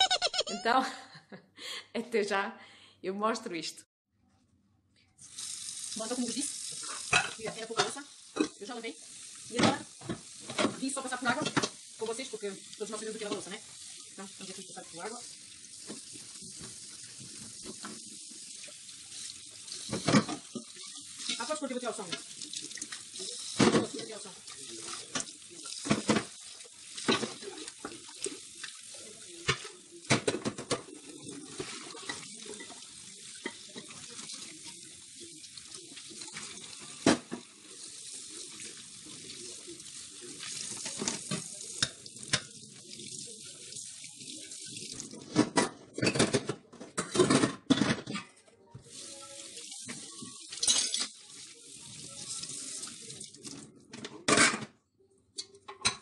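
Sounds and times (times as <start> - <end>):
tap water running into sink: 5.2 - 45.6, 48.8 - 53.7
metal cookware clattering: 6.8 - 8.7, 45.2 - 48.4.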